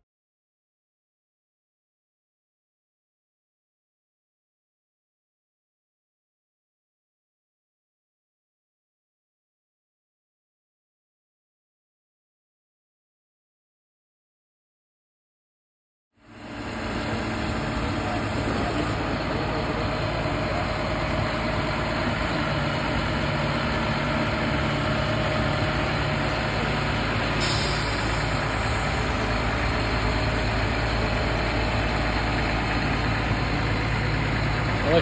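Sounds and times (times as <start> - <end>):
diesel locomotive engine humming: 16.2 - 35.0.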